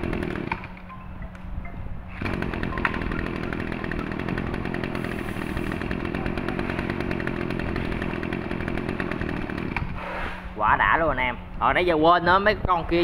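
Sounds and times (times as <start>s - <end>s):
brush cutter engine running: 0.0s - 0.8s, 2.1s - 10.0s.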